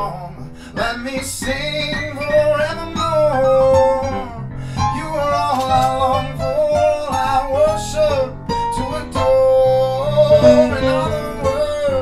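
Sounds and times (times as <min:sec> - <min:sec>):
man singing jazz: 0:00.0 - 0:12.0
electronic keyboard: 0:10.2 - 0:11.8.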